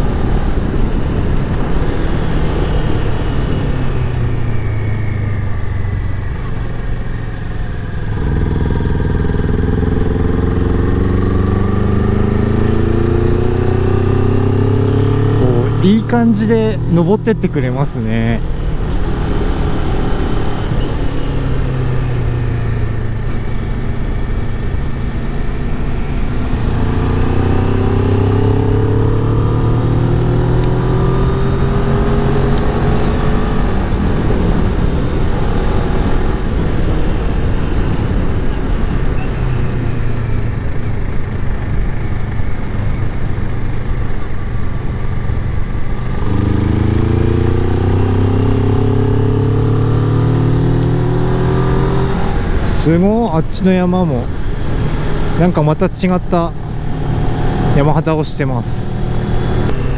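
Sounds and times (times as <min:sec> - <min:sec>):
wind noise: 0:00.0 - 0:15.8, 0:16.6 - 0:58.2
motorcycle engine accelerating uphill: 0:00.0 - 0:59.9.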